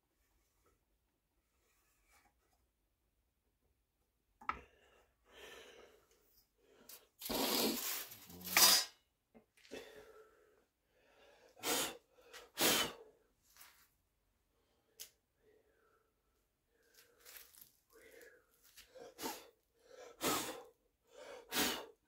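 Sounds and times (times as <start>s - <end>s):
person sneezing: 7.2s - 9.0s, 21.5s - 21.9s
hard bursts of breath: 9.7s - 13.2s, 18.0s - 22.0s.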